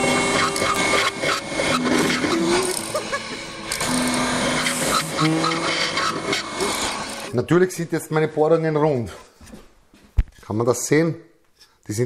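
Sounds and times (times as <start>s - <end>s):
electric mortiser milling wood: 0.0s - 7.4s.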